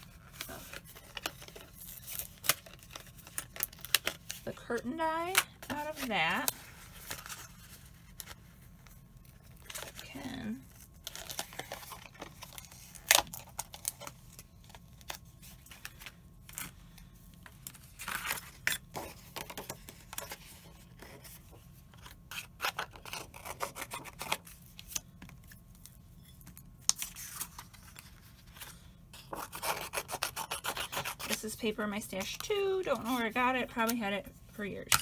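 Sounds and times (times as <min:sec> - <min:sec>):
tool scratching card: 0:29.2 - 0:31.4.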